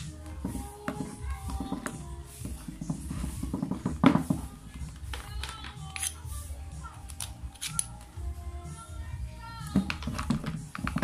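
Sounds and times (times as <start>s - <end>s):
background music: 0.0s - 11.0s
screwdriver clicking on screws: 5.1s - 6.2s, 7.1s - 8.0s.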